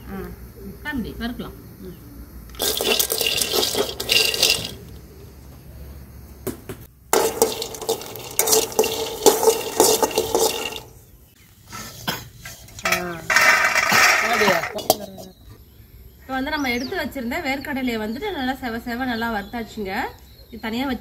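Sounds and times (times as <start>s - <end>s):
peanuts rattling in a pan: 2.5s - 4.8s, 7.1s - 11.0s, 12.5s - 15.1s.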